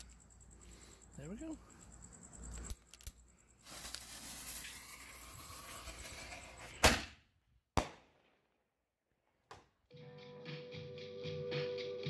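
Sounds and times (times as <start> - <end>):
firework fuse hissing: 3.6 - 6.8
firework shell bursting: 3.6 - 7.1.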